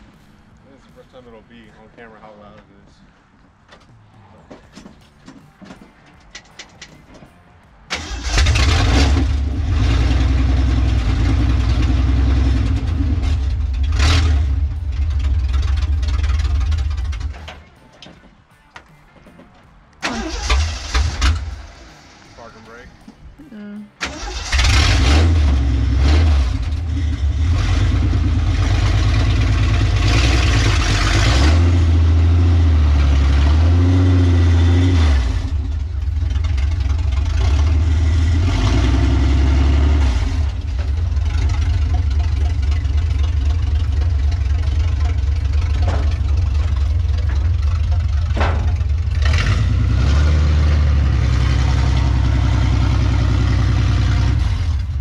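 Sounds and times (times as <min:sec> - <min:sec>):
car engine revving: 0:07.9 - 0:17.4, 0:24.0 - 0:55.0.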